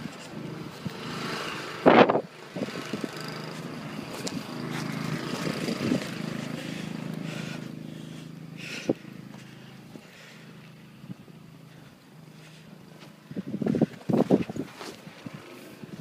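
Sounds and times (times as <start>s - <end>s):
steady low hum: 0.0s - 16.0s
footsteps crunching in snow: 2.8s - 8.2s, 11.7s - 16.0s.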